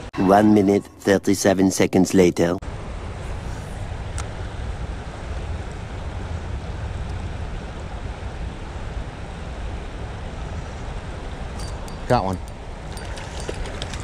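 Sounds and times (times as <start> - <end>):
wind buffeting microphone: 4.8 - 14.0.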